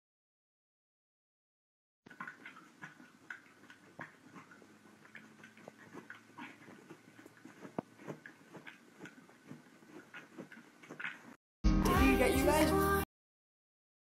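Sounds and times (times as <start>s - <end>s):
dog clicking and scuffling: 2.1s - 11.4s.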